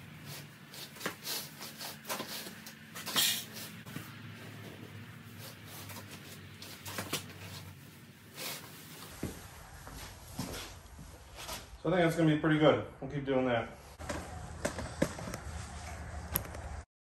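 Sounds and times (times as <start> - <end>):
knife cutting insulation: 0.2 - 3.8.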